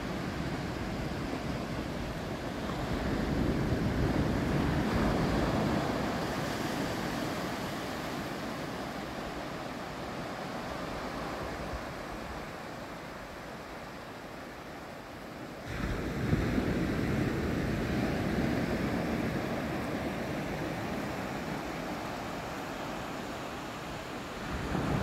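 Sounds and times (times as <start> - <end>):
wind on microphone: 0.0 - 9.4, 15.7 - 25.0.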